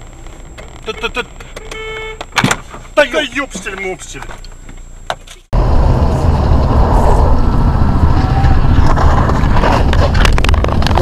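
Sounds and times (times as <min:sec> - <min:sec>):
vehicle road and engine rumble: 0:00.0 - 0:11.0.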